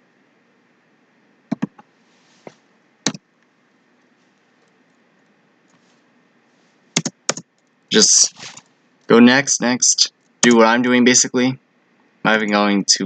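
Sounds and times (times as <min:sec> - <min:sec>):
keyboard key clicks: 0:01.5 - 0:01.8, 0:07.0 - 0:07.4.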